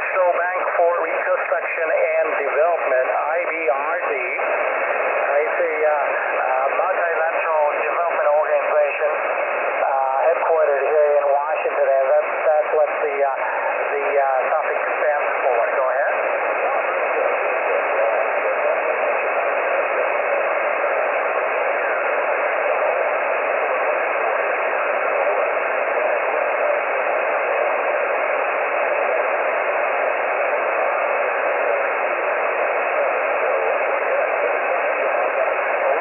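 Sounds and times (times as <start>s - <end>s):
radio band noise hiss: 0.0s - 36.0s.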